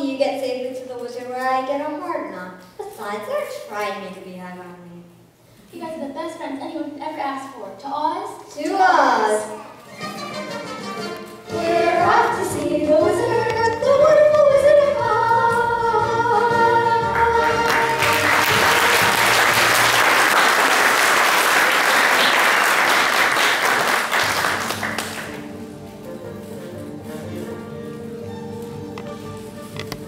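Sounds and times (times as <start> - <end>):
voices singing with music: 11.4 - 19.1
audience applause: 17.4 - 25.5.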